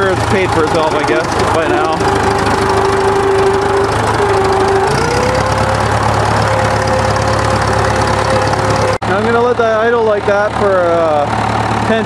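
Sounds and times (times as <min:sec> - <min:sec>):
engine whine: 0:00.0 - 0:12.0
tractor diesel engine running: 0:00.0 - 0:12.0.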